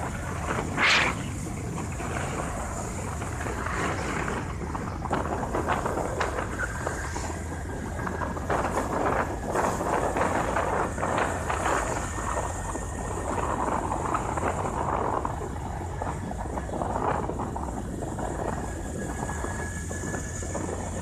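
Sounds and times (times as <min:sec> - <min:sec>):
rushes of noise: 0:00.0 - 0:15.3
vehicle engine and road noise: 0:00.0 - 0:21.0.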